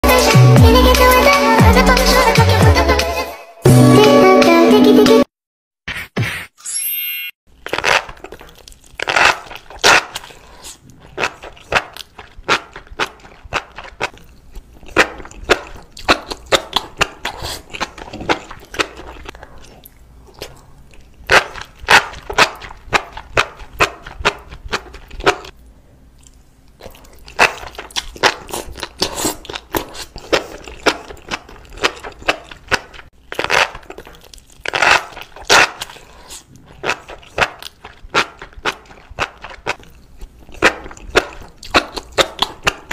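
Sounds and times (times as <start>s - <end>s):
sharp clicks and crunches: 7.5s - 19.8s, 26.2s - 42.9s.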